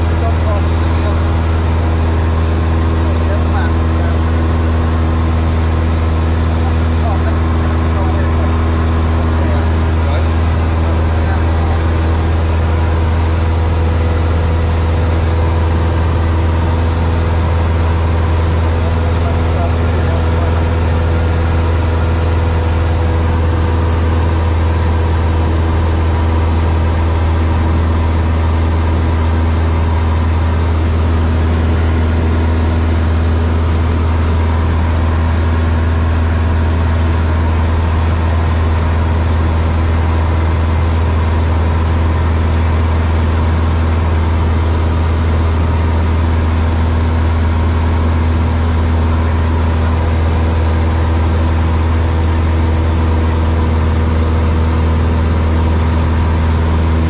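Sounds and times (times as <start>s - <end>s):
light aircraft engine drone: 0.0s - 57.0s.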